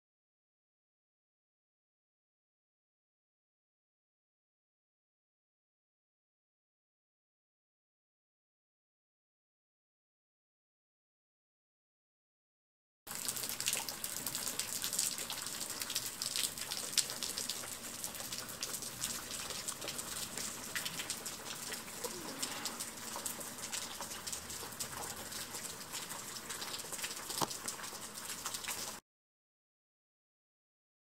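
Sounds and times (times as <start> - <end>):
water drops: 13.1 - 29.0
water trickling down rock: 13.1 - 29.0.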